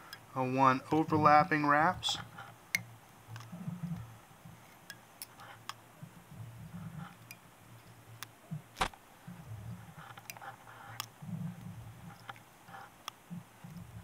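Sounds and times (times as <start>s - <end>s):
small ticks and clicks of fingers: 2.2s - 5.8s, 7.1s - 8.4s, 10.1s - 11.2s, 12.1s - 13.9s.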